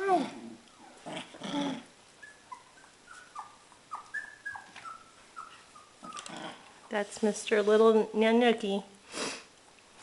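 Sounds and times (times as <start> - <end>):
puppies whimpering: 0.0 - 7.0.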